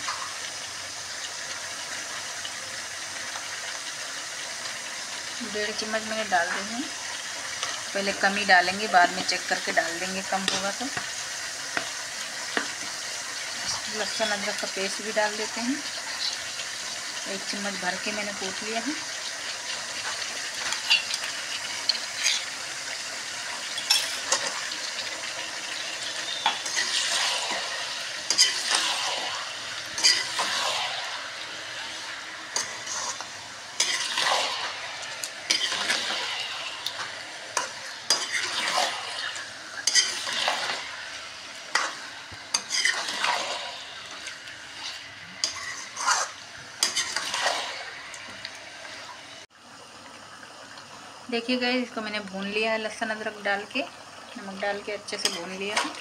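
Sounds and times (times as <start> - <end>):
meat sizzling in oil: 0.0 - 56.0
ladle scraping and clinking pan: 30.0 - 31.0, 37.6 - 40.8, 45.4 - 47.7.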